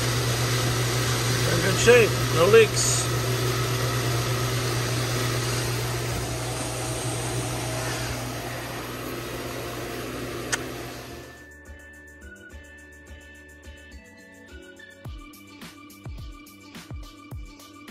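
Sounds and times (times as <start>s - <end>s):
pool pump humming: 0.0s - 11.4s
sharp click: 10.4s - 10.8s
music: 11.3s - 17.9s.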